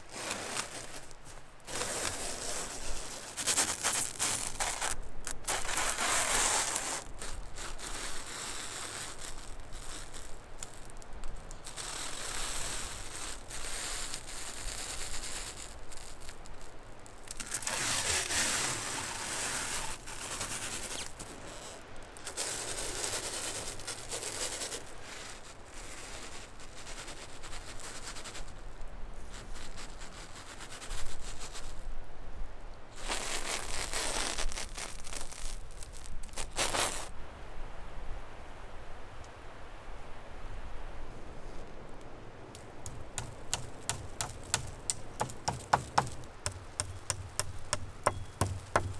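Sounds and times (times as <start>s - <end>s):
plastic wrap film rustling: 0.0s - 28.6s, 33.0s - 37.1s, 42.6s - 48.9s.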